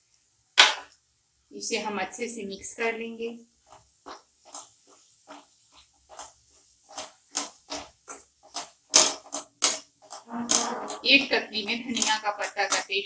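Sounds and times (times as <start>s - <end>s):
spatula scraping a pan: 10.0s - 12.6s.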